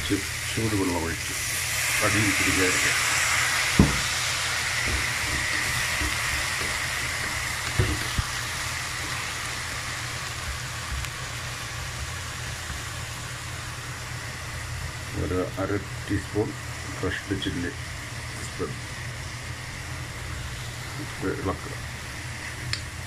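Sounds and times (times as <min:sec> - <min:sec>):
water sizzling in a pan: 0:00.0 - 0:23.0
wooden spatula knocking on pan: 0:03.8 - 0:04.0.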